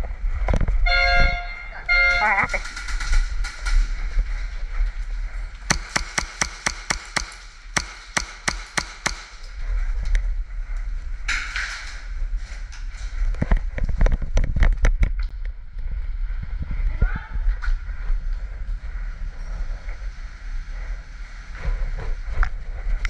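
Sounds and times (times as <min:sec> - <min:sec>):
airsoft pistol shots snapping: 0:05.7 - 0:09.5.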